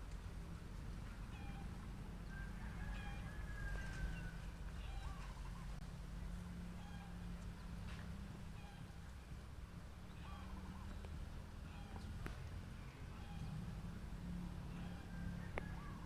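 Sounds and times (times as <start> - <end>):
distant bird calls: 0.9 - 16.0
steady low rumble: 4.1 - 16.0.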